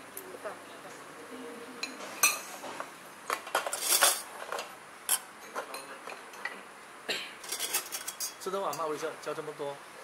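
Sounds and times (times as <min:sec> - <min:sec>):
cutlery clinking on plates: 0:01.8 - 0:06.6, 0:07.4 - 0:08.9.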